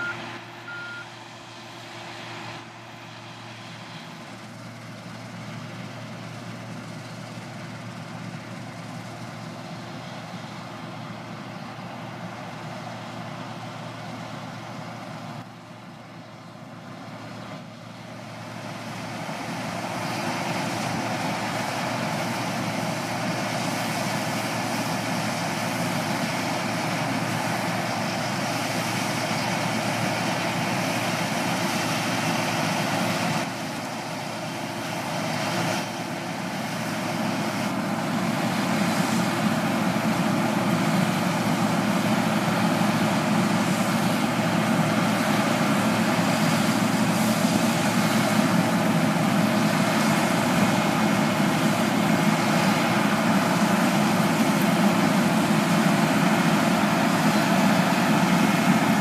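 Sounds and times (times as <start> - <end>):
reversing beeper: 0.0 - 1.2
combine harvester engine and threshing: 0.0 - 59.0.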